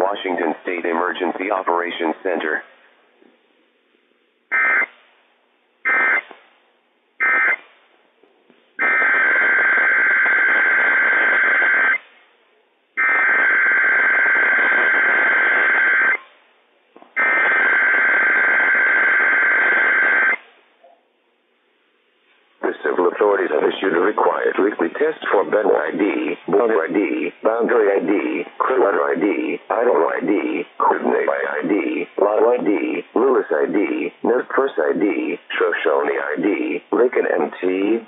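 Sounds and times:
long data tone bursts: 0:04.5 - 0:04.9, 0:05.9 - 0:06.3, 0:07.2 - 0:07.6, 0:08.8 - 0:12.0, 0:17.2 - 0:20.4.

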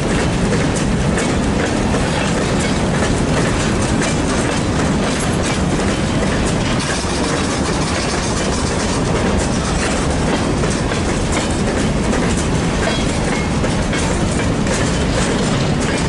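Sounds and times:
train rumble: 0:00.0 - 0:16.0
train wheels clicking over rail joints: 0:00.0 - 0:16.0.

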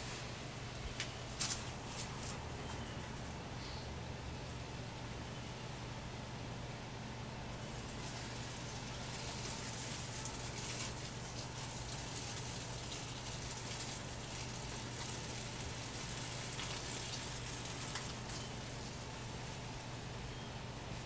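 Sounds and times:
urine spattering on leaves: 0:07.8 - 0:19.6.

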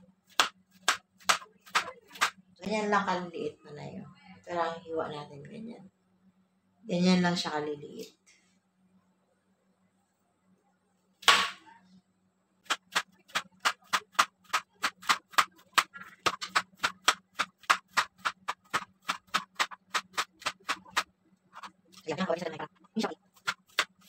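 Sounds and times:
faint steady hum: 0:00.0 - 0:24.0
knife chopping on cutting board: 0:12.7 - 0:21.0, 0:23.4 - 0:24.0.

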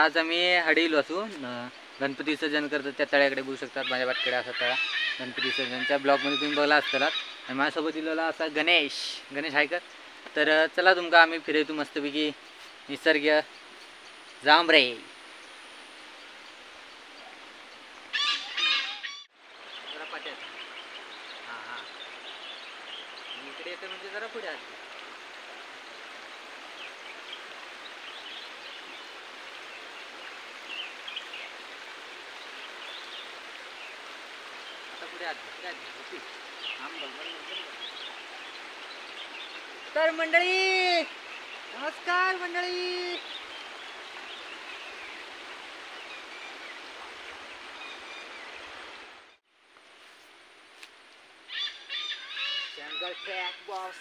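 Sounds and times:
steady rushing hiss: 0:00.0 - 0:18.2
birds chirping: 0:00.0 - 0:49.4, 0:51.2 - 0:54.0
stream flowing: 0:00.0 - 0:54.0.

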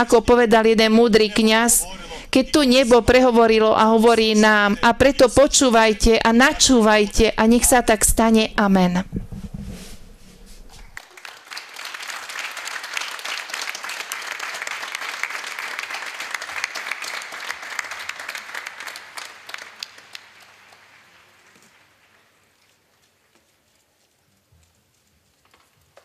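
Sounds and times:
crowd applauding: 0:11.0 - 0:22.6.

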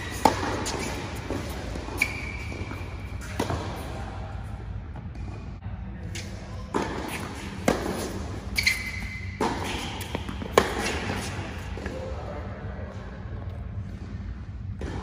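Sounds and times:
shoe squeak: 0:00.0 - 0:03.4, 0:08.4 - 0:11.0.

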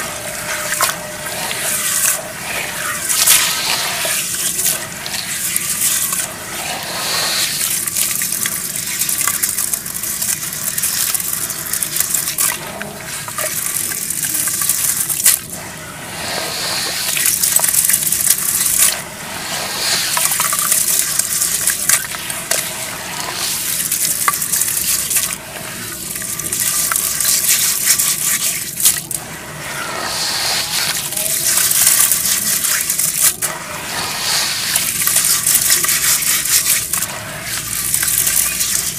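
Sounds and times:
hands squelching wet mud: 0:19.8 - 0:29.2, 0:34.2 - 0:38.9.

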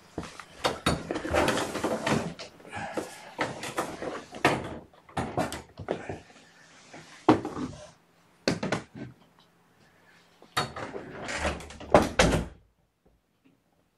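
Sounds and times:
knocks and clunks of objects: 0:00.2 - 0:06.2, 0:08.4 - 0:09.3, 0:10.5 - 0:12.6.

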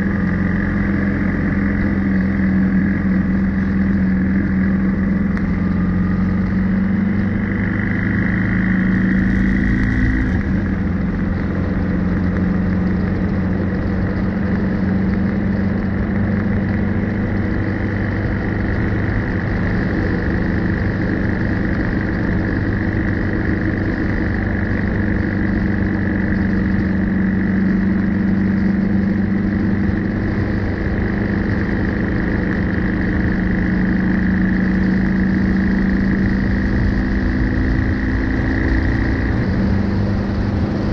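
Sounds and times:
motorcycle engine running: 0:00.0 - 0:40.9
wind and road noise: 0:00.0 - 0:40.9.

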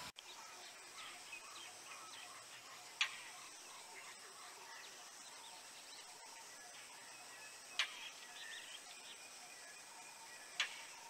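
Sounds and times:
faint bird chirps: 0:00.0 - 0:11.0.

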